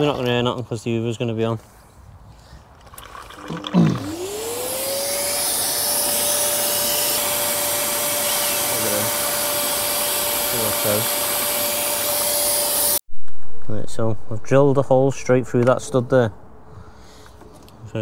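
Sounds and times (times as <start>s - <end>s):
vacuum cleaner running: 3.4s - 13.0s.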